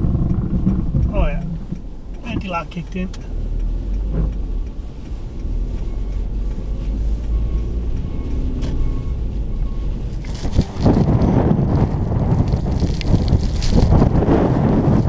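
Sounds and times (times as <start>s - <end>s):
wind buffeting microphone: 0.0s - 2.4s, 9.8s - 15.0s
car engine and tyres rumbling: 0.0s - 15.0s.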